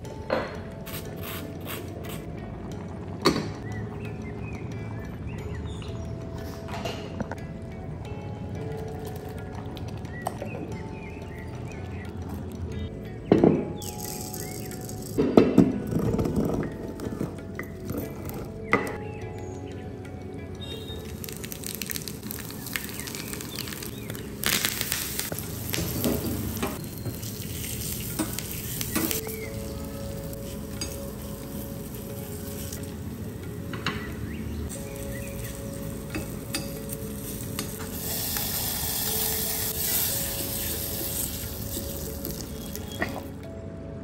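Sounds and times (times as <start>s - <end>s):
spices sizzling in hot oil: 20.7s - 33.3s, 34.7s - 43.3s.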